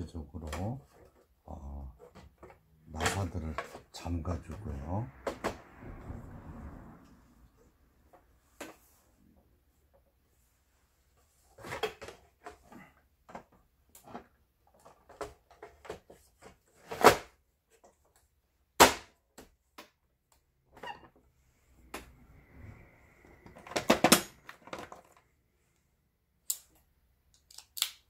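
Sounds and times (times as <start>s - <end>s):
plastic parts clicking and knocking: 11.6s - 18.2s, 23.4s - 25.3s.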